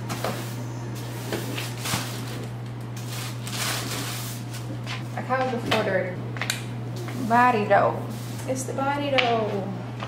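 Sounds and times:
low hum: 0.0 - 9.0
kitchen scrapes and rustles: 3.0 - 5.0.

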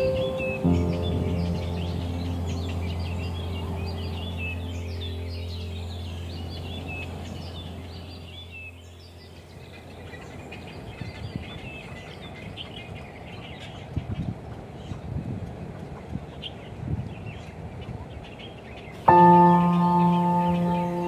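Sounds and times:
steady low hum: 0.0 - 11.5
small birds chirping: 0.0 - 21.0.

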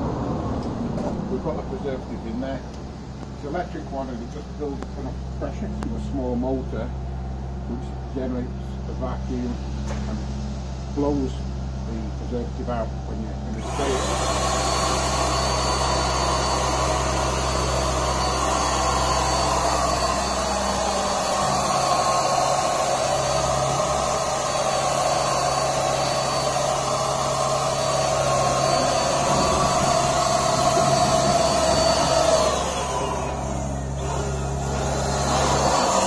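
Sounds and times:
electric spray gun whining: 13.5 - 36.0.

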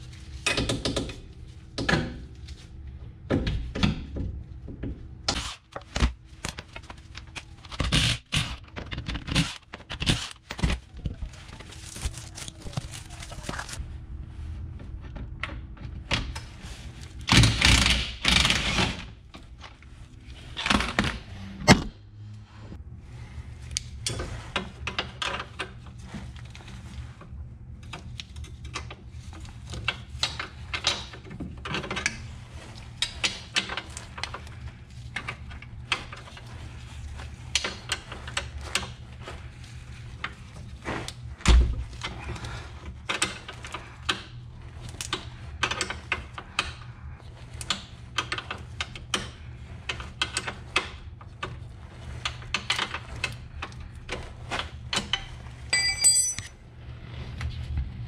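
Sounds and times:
steady low hum: 0.0 - 58.0
hand tools clicking and clinking: 55.7 - 56.5
ringing metallic tone: 55.8 - 56.5.

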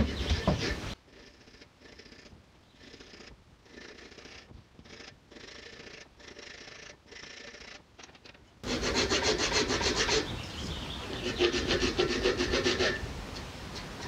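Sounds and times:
file rasping on wood: 8.6 - 10.3, 11.1 - 13.1.

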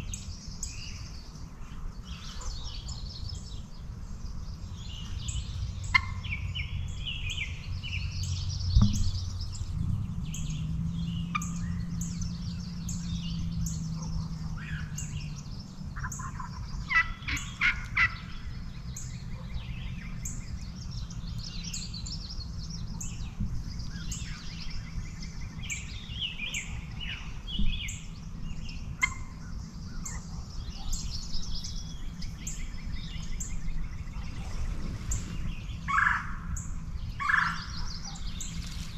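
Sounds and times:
songbirds chirping: 0.0 - 38.9
wild turkey gobbling: 5.9 - 6.2, 16.0 - 18.2, 29.0 - 29.3, 35.9 - 36.4
low thumps: 8.6 - 10.7.

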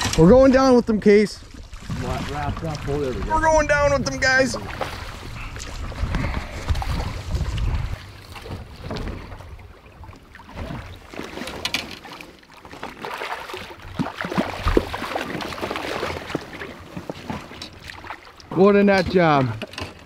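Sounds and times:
river water splashing: 0.0 - 20.0
wind rumble on microphone: 1.8 - 10.1.

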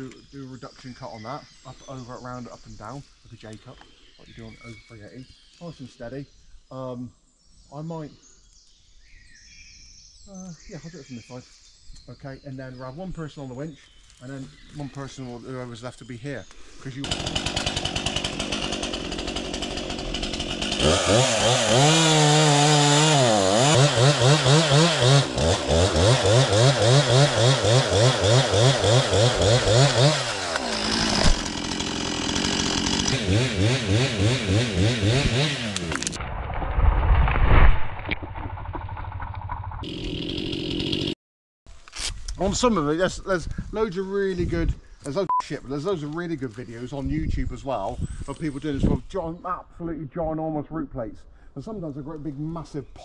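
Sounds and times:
chainsaw cutting wood: 17.0 - 36.2, 39.8 - 41.2.

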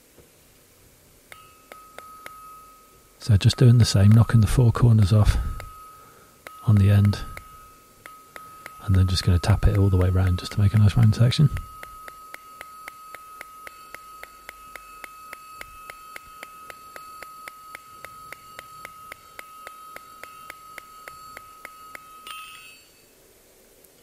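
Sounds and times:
hammer tapping steel on anvil: 1.3 - 23.1
anvil ringing: 1.3 - 23.2.

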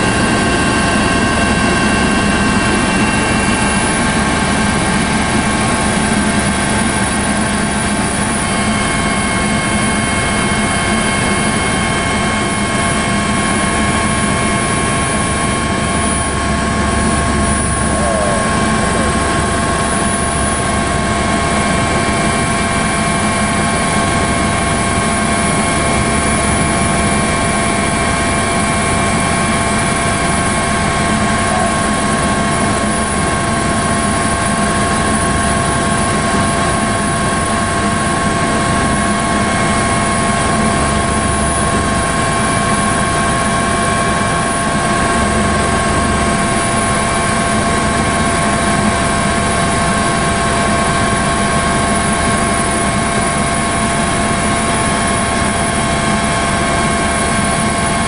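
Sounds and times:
helicopter engine and rotor rush: 0.0 - 58.0
steady whining tones: 0.0 - 58.0.

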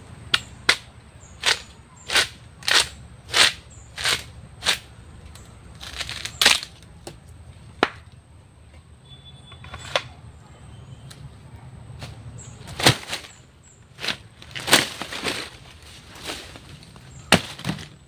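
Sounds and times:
machete chopping wood: 0.3 - 4.8, 7.8 - 8.1, 12.7 - 13.4, 17.3 - 17.9.

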